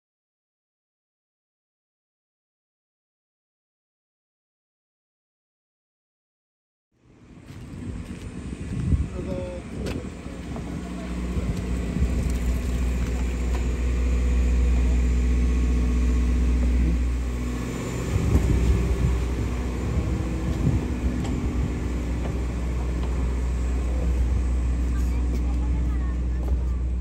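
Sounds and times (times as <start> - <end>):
boat engine rumbling: 7.0 - 27.0.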